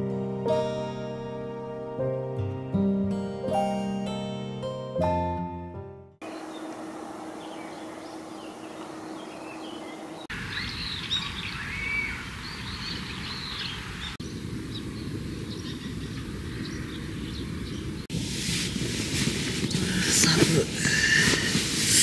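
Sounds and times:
wild birds chirping: 6.2s - 18.1s
outdoor background hiss: 6.2s - 22.0s.

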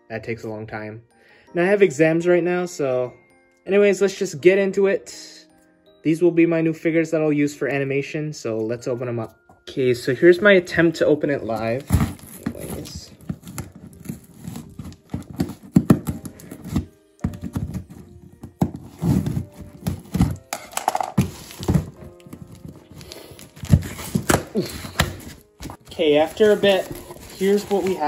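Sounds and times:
faint music: 0.0s - 28.0s
knocks and thuds on a box: 17.2s - 18.8s.

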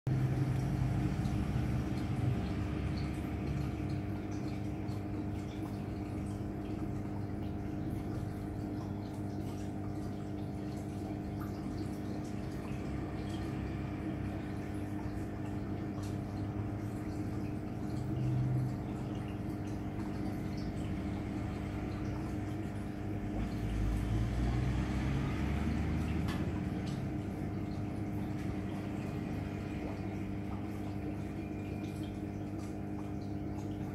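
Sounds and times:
aquarium pump humming: 0.1s - 33.9s
water trickling and dripping: 0.1s - 33.9s.

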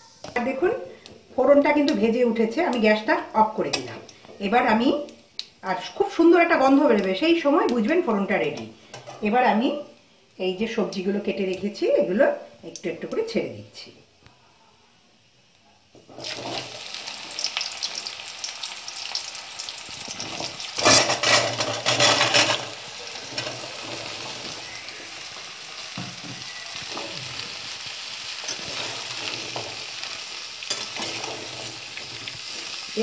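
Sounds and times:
vegetables sizzling in hot oil: 0.0s - 9.8s, 15.2s - 33.0s
steel spatula scraping pan: 20.2s - 24.6s, 28.4s - 30.0s, 30.7s - 32.8s.

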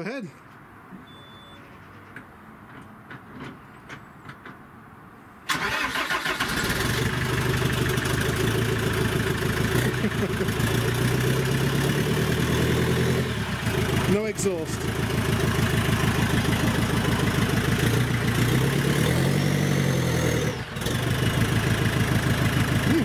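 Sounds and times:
diesel engine starting and idling: 5.4s - 23.0s.

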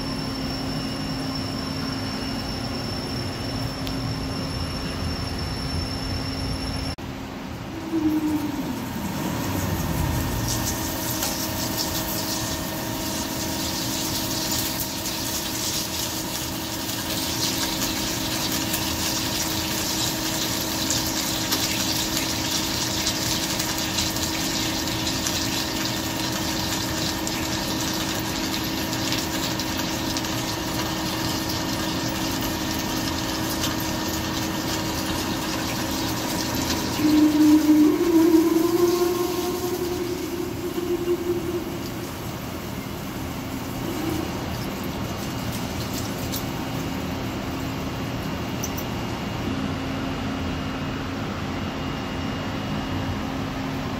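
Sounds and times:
falling machine whine: 0.0s - 47.6s
machine hum: 0.0s - 48.9s
coolant hissing and splashing: 8.9s - 40.0s, 41.8s - 48.3s.

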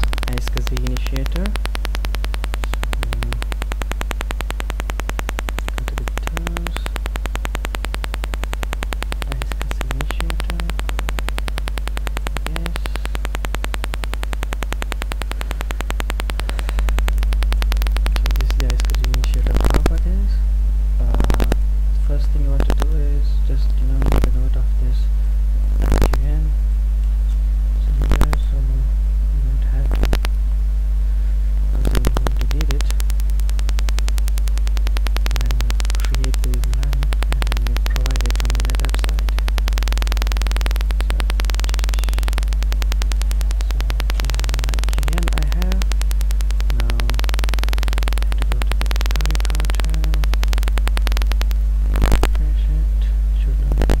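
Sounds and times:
short clicks: 0.0s - 20.4s, 31.7s - 52.5s
buzzing crackling noise: 0.0s - 54.0s
low electrical hum: 0.0s - 54.0s.

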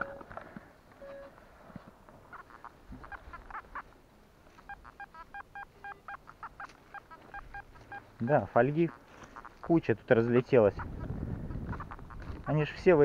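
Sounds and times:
metal detector beeping: 0.0s - 0.3s, 1.0s - 1.3s, 4.6s - 8.4s.

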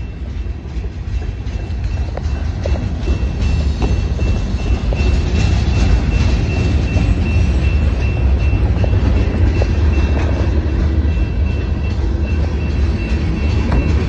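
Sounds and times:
crossing bell ringing: 0.0s - 14.0s
freight train rumbling past: 0.0s - 14.0s
train wheel clacks: 0.0s - 14.0s.

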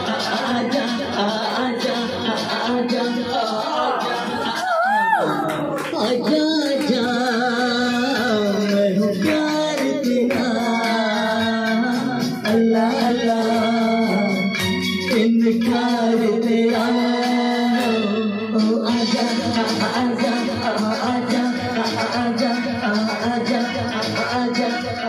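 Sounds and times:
instrumental backing music: 0.0s - 25.0s
man singing into a microphone: 0.0s - 25.0s.

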